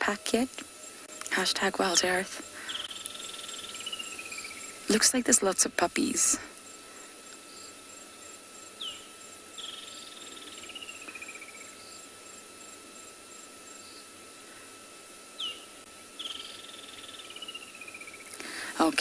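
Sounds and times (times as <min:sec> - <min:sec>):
insects fast pulsing: 0:00.0 - 0:19.0
insects steady high note: 0:00.0 - 0:19.0
bird singing with trill: 0:08.8 - 0:11.7, 0:15.4 - 0:15.6.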